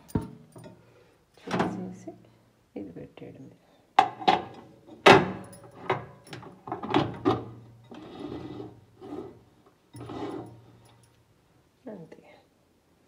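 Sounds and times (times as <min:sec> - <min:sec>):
rolling scrape: 0:07.9 - 0:10.6.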